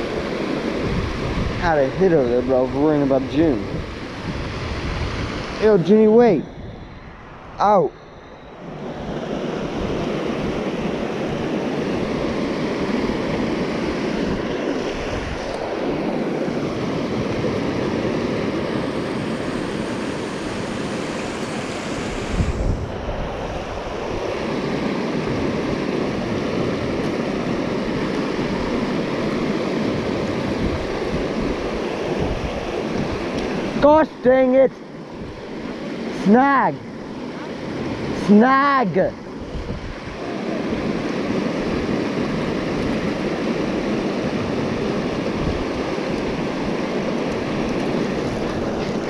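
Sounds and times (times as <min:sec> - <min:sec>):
wind buffeting microphone: 0:00.0 - 0:49.0
river water rushing over rocks: 0:23.6 - 0:49.0.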